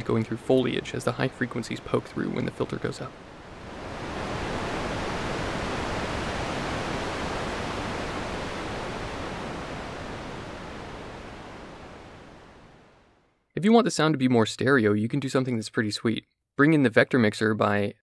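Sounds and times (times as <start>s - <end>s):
synthesized gusty wind hiss: 0.0s - 13.3s.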